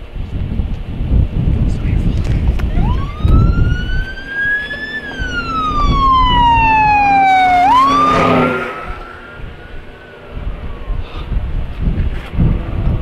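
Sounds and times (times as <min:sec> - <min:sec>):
fire truck siren wailing: 0:02.7 - 0:11.0.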